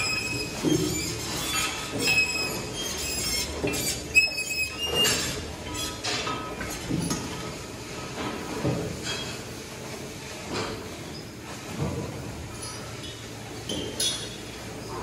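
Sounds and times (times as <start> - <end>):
metal squeaking: 0.0 - 6.1.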